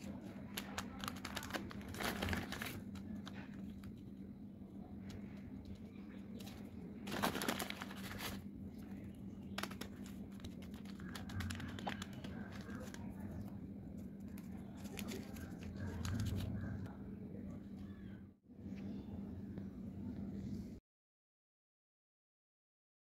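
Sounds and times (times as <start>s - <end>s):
paper rustling and crinkling: 0.0s - 4.2s, 5.0s - 16.9s
steady low hum: 0.0s - 20.8s.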